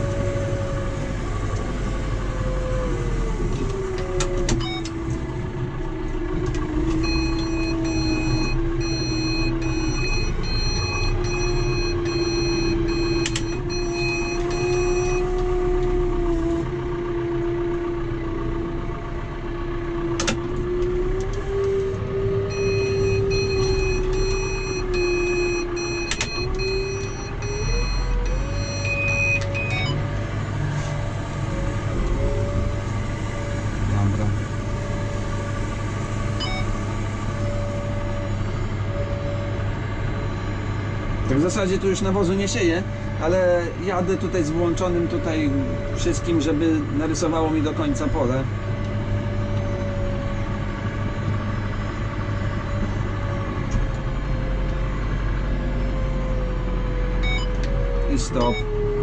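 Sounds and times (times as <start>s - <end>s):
tractor engine whine: 0.0s - 59.0s
rapid high electronic beeps: 58.4s - 58.6s.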